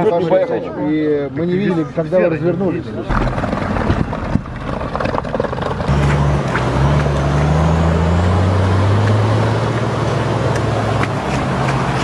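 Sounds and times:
knocks and rattles: 3.1 - 6.2
off-road vehicle engine under load: 3.1 - 12.0.

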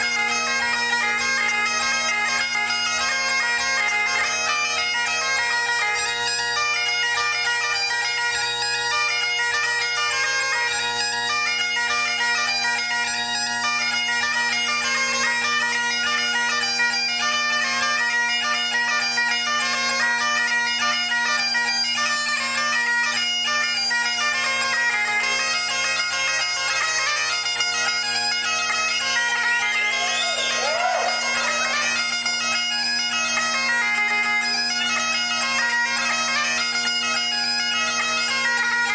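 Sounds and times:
bagpipe chanter melody: 0.0 - 38.9
bagpipe drones: 0.0 - 38.9.

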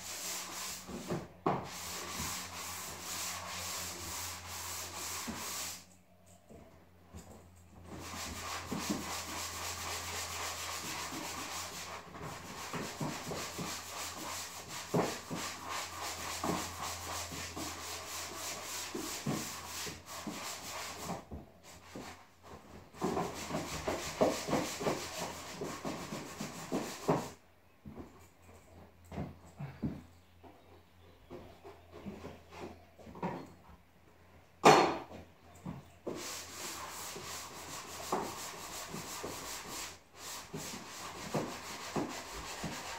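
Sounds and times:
sanding drywall by hand: 0.0 - 5.9, 7.8 - 27.4, 36.0 - 42.9.

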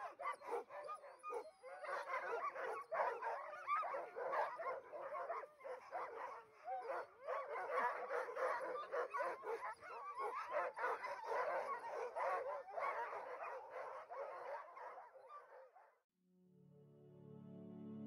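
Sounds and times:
dogs barking and yelping: 0.0 - 16.0.

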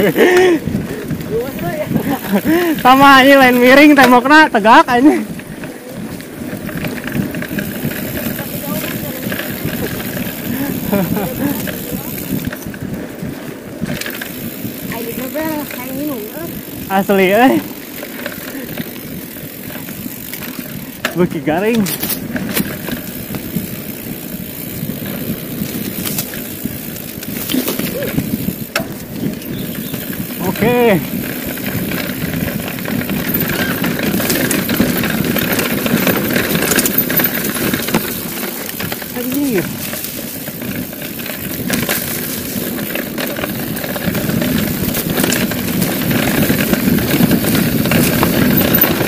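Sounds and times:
bike rattling: 0.0 - 49.0
bike tyres rumbling on dirt: 0.0 - 49.0
wind noise on microphone: 0.0 - 49.0
bike knocking over bumps: 17.6 - 49.0.

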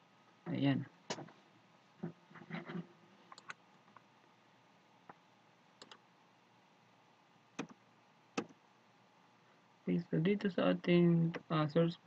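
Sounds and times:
mouse and keyboard clicks: 3.3 - 4.0, 5.8 - 6.0.

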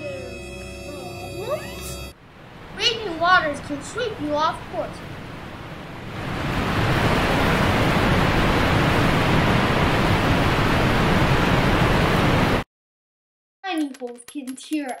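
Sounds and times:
rushing river water: 2.4 - 12.6.

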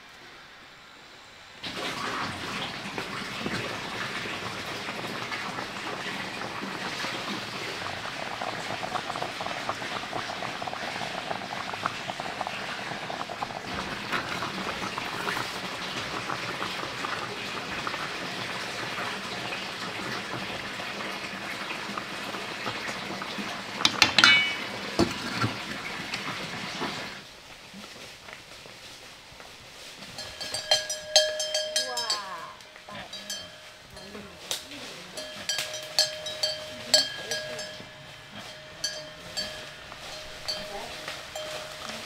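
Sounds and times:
fish simmering and bubbling: 0.8 - 42.0
metal pot lid clanking: 23.8 - 25.6.

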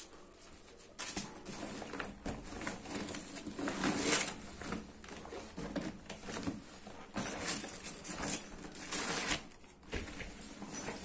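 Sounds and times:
backpack rustling and crinkling: 0.1 - 11.0.

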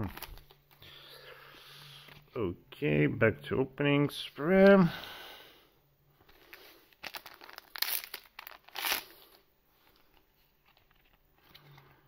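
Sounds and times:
foil wrappers crinkling: 0.0 - 0.6, 6.4 - 9.4.

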